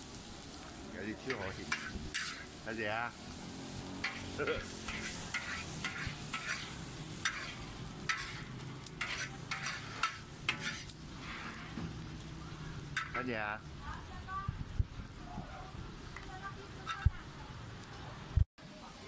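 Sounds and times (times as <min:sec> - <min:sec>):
noodles sizzling in a wok: 0:00.0 - 0:15.0
metal spatula scraping a wok: 0:01.2 - 0:12.0, 0:12.8 - 0:13.5, 0:16.7 - 0:17.2.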